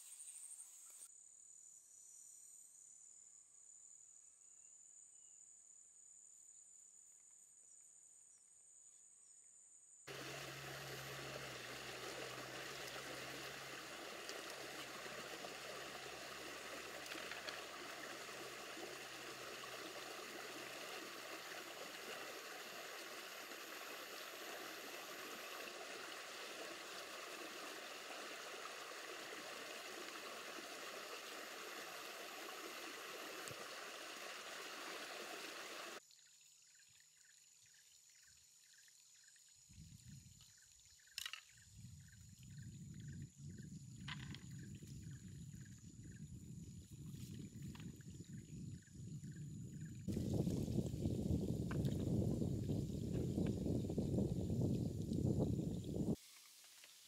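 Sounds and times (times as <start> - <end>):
insects trilling: 0.0 - 57.0
running water rushing: 10.1 - 36.0.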